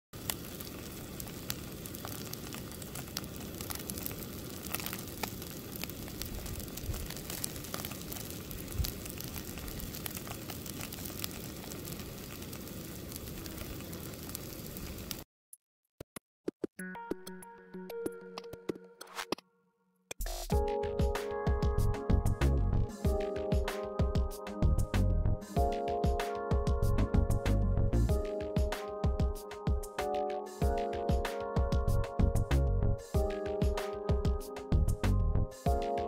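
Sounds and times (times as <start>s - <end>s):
oil popping and crackling: 0.2s - 15.2s
oil sizzling in a skillet: 0.2s - 15.2s.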